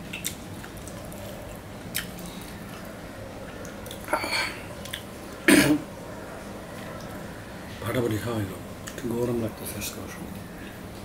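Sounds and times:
lip smacks and chewing clicks: 0.1 - 2.6, 4.8 - 5.1.

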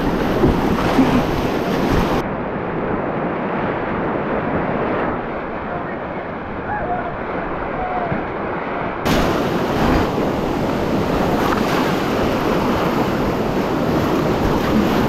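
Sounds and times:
whitewater rapids rushing: 0.0 - 2.2, 9.1 - 15.0.

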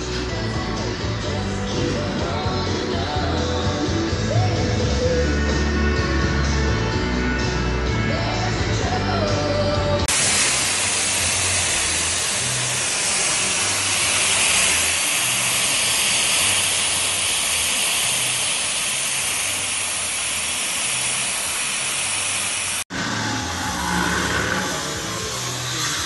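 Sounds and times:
gas cutting torch hissing: 10.0 - 26.0
low hum: 10.1 - 26.0.

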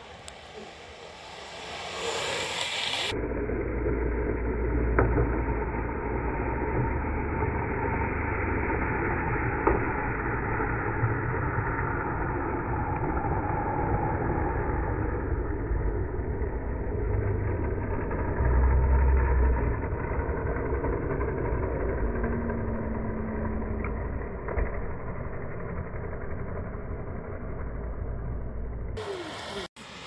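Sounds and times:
skateboard wheels rumbling on asphalt: 0.0 - 30.0.

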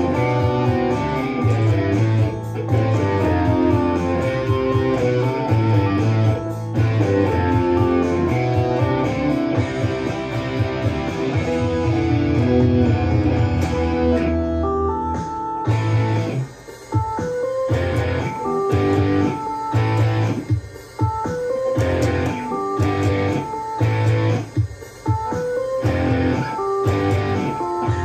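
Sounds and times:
electric guitar: 0.0 - 28.0
rock band track: 0.0 - 28.0
hi-hat ticking: 15.7 - 28.0.

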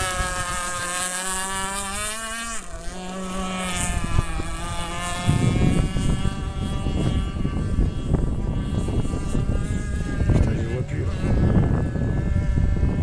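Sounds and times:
model boat engine whining: 0.0 - 13.0
wind on microphone: 0.0 - 13.0.

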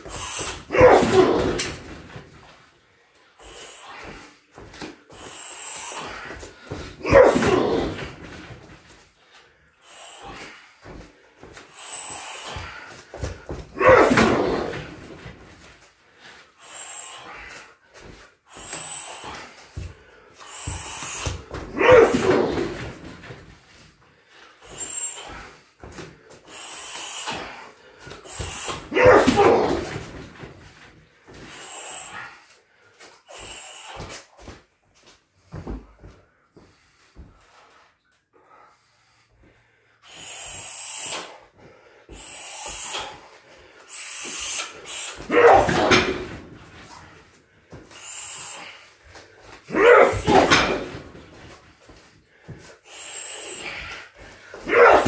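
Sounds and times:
kicks: 0.0 - 2.5, 6.0 - 9.0, 10.2 - 15.6, 18.0 - 23.5, 27.3 - 30.8, 44.3 - 47.9, 49.6 - 52.7
man breathing hard: 1.6 - 7.1, 7.8 - 13.8, 14.5 - 21.8, 22.5 - 29.0, 29.8 - 34.6, 35.4 - 54.7.

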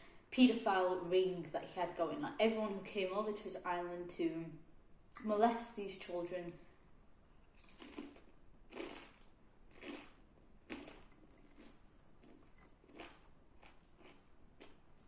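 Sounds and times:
close-up chewing: 7.6 - 15.0.

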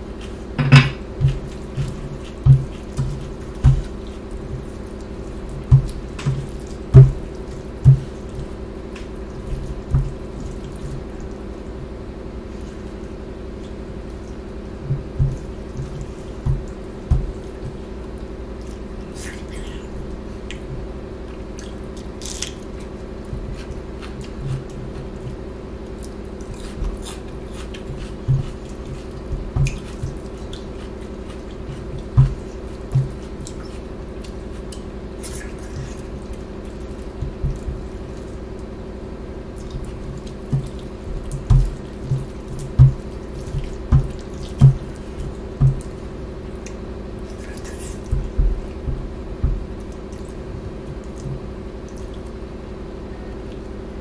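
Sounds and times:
wet squelching of food mixed by hand: 0.0 - 52.6
steady low hum: 0.0 - 54.0
soft low thumps: 5.6 - 8.6, 9.6 - 10.4, 14.8 - 18.0, 31.6 - 33.3, 40.5 - 46.0, 48.1 - 49.8
chewing with wet mouth clicks: 15.2 - 19.7, 20.4 - 38.7, 39.5 - 49.0, 49.6 - 52.4.

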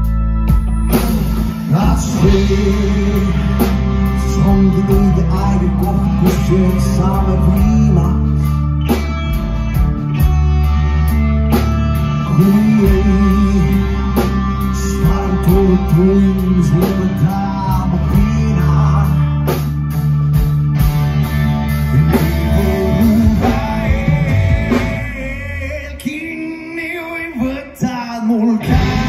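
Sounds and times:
rock band playing: 0.0 - 29.0.

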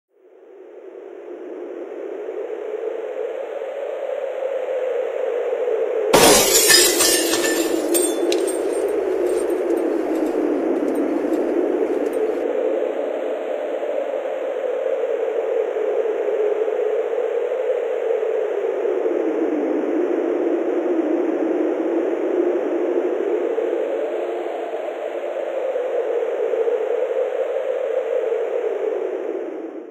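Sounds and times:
faint glassy tinkles: 6.2 - 9.7.

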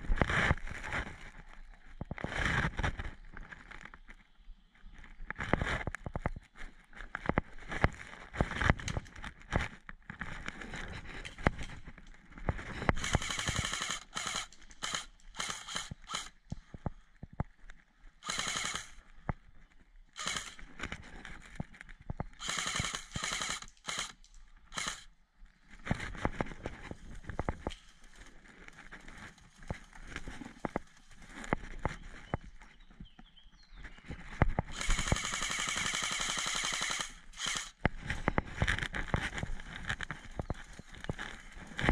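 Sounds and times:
airsoft guns full-auto bursts: 13.0 - 16.4, 18.2 - 19.0, 20.2 - 20.6, 22.4 - 25.1, 34.7 - 37.8.

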